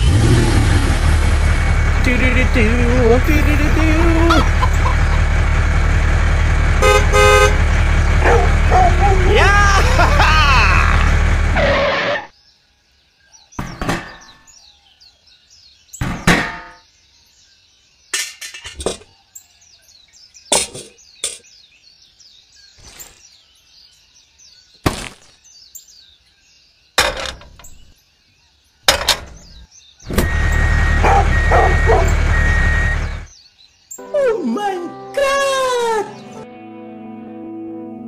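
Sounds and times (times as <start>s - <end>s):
engine-like rumble: 0.0s - 12.0s, 29.0s - 33.4s
birds chirping: 1.6s - 6.1s, 6.8s - 36.4s.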